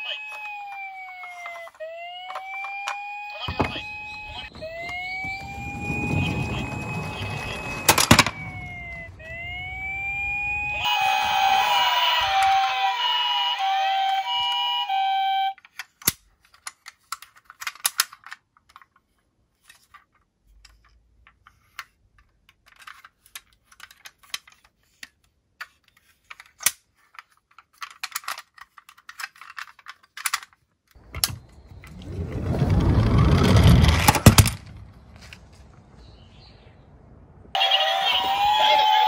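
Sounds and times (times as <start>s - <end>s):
rushing noise: 4.1s - 13.4s
toy van clicks and taps: 15.6s - 31.4s.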